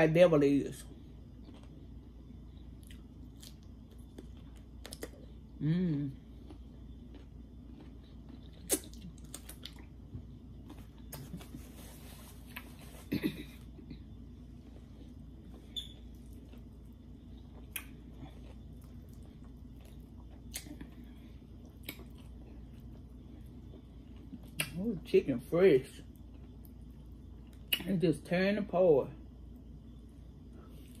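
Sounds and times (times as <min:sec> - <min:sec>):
chewing cucumber: 0:01.3 - 0:11.8, 0:14.7 - 0:24.9.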